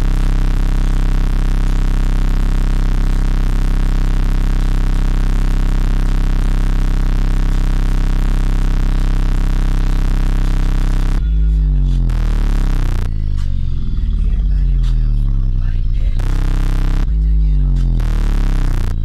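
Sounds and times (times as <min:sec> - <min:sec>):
subwoofer deep bass drone: 0:00.0 - 0:19.0.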